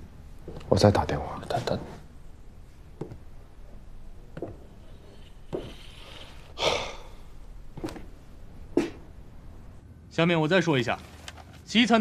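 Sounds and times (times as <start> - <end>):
breathy sigh: 6.2 - 7.3.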